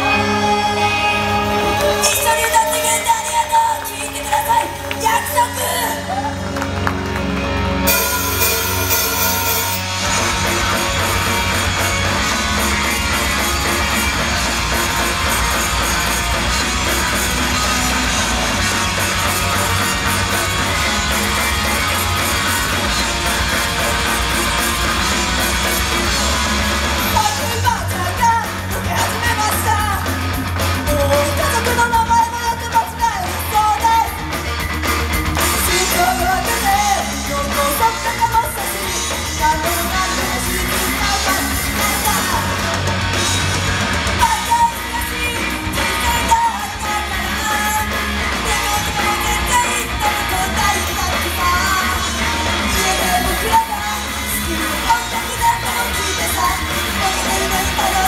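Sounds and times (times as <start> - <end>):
person singing: 0.0 - 6.5, 35.6 - 42.9, 44.2 - 58.0
heavy rock music: 0.0 - 58.0.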